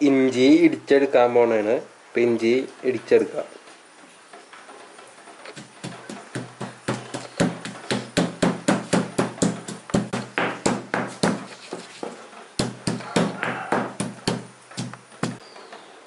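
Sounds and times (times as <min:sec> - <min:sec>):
pestle pounding in stone mortar: 0:05.5 - 0:15.4.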